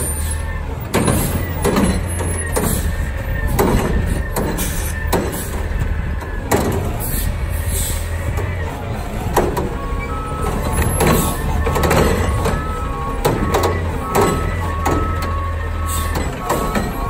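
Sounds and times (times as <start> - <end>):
garbage truck diesel engine: 0.0 - 17.0
metal clanks and bangs: 0.0 - 17.0.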